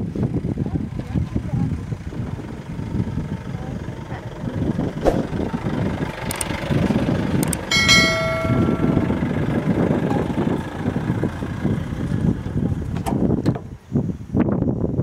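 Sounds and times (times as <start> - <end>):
steady low rumble: 0.0 - 13.4
bell-like notification ding: 7.7 - 9.3.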